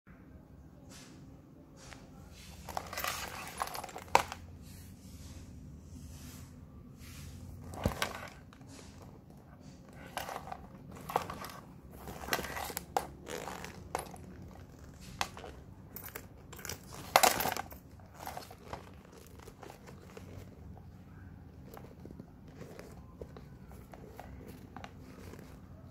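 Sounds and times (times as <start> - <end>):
leather bag rustling and creaking: 2.4 - 4.5, 7.3 - 25.9
metal hardware clinking: 2.6 - 4.4, 9.9 - 20.4.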